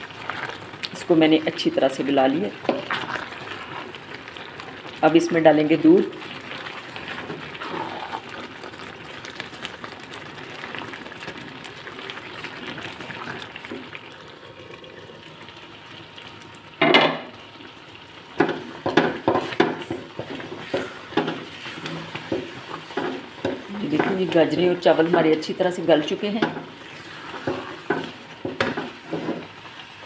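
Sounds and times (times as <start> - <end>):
pan simmering and bubbling: 0.0 - 30.0
spoon scraping and knocking pan: 2.6 - 3.2, 18.4 - 24.4, 26.3 - 29.6.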